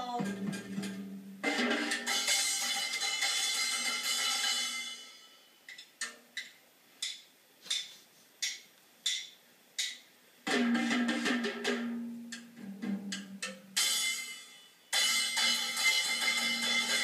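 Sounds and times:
child banging on drum kit: 0.0 - 5.2, 9.1 - 17.0
cymbal clash: 13.8 - 17.0.

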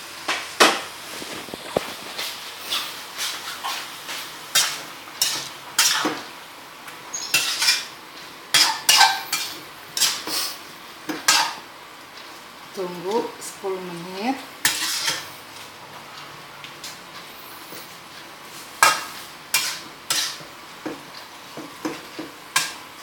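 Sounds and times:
metal spatula scraping a pan: 1.1 - 6.3, 7.1 - 11.6, 14.6 - 15.4, 17.3 - 21.0, 21.6 - 22.9.

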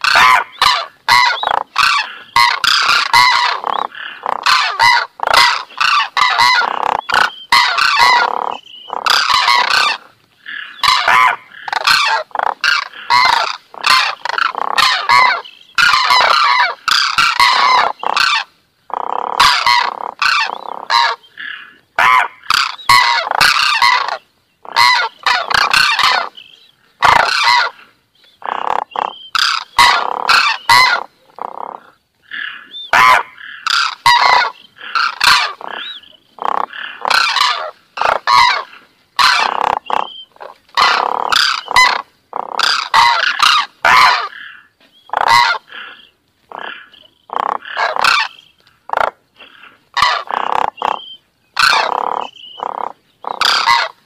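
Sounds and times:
cranes trumpeting: 32.3 - 48.4.

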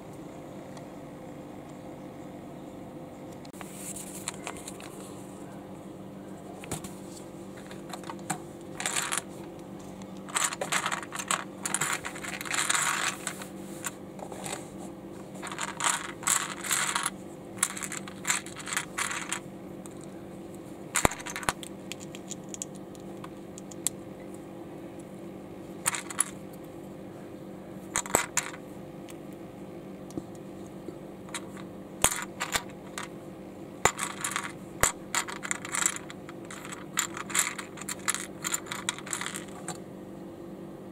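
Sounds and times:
steady low hum: 0.0 - 40.9
plastic bricks clattering: 7.6 - 9.3, 10.2 - 13.5, 15.4 - 19.4, 21.0 - 22.7, 25.8 - 26.4, 28.0 - 28.6, 31.3 - 33.1, 33.9 - 39.6.

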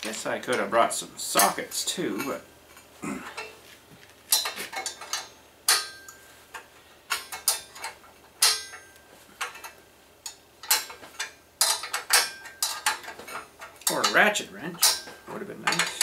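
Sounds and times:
wrench clicking on metal nuts: 4.3 - 14.2.

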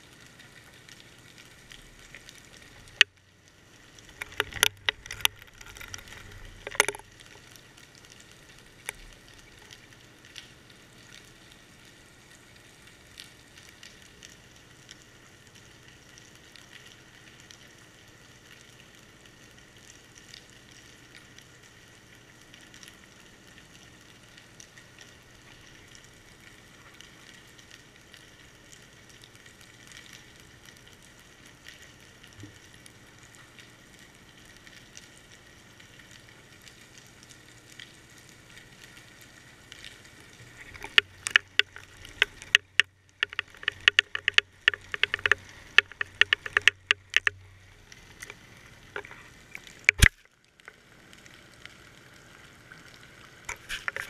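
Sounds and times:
fine crackling hiss underwater: 0.0 - 54.0
sharp knocks: 42.5 - 47.3.

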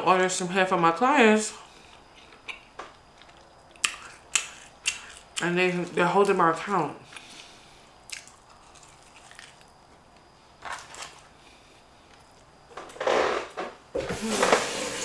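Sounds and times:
soft chewing: 1.8 - 5.5, 7.0 - 10.3
small handling noises: 8.2 - 13.0.

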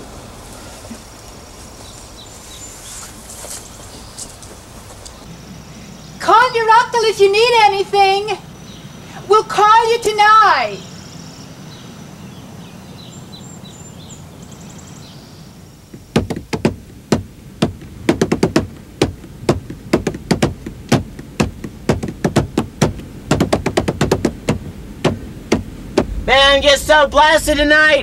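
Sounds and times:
faint bird chirps: 10.0 - 16.1
sharp percussive knocks and taps: 15.9 - 26.2.

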